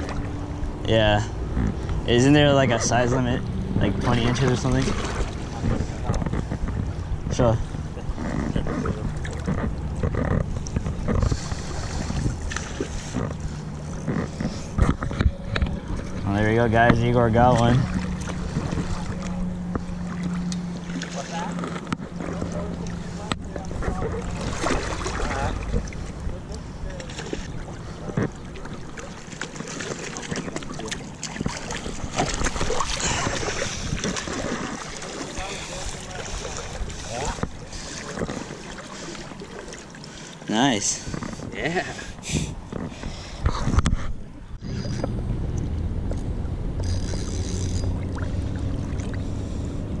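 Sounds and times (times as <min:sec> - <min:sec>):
wind rumbling on microphone: 0:00.0 - 0:20.1, 0:30.3 - 0:38.5, 0:41.0 - 0:50.0
river water splashing: 0:00.0 - 0:50.0
rustling and knocks from handling: 0:05.6 - 0:06.9.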